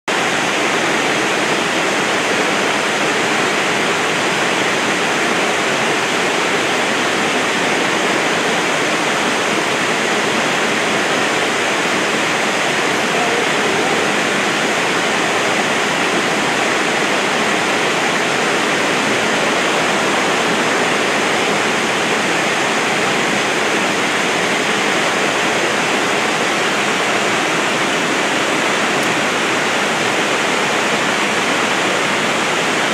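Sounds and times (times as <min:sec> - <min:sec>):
waterfall rushing: 0:00.1 - 0:32.9.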